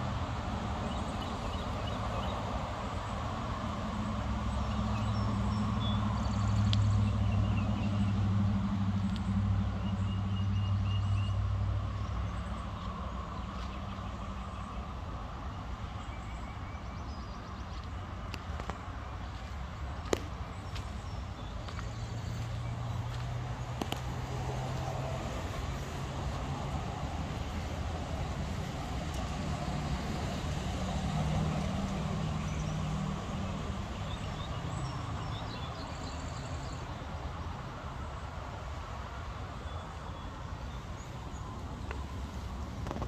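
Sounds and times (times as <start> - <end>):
passing vehicle engine hum: 0.0 - 43.0
birds chirping: 4.4 - 37.3.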